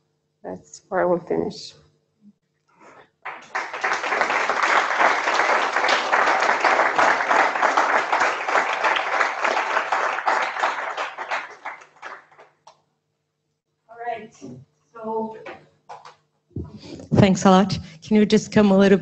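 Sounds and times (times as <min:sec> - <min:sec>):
audience applauding: 0:03.2 - 0:12.6.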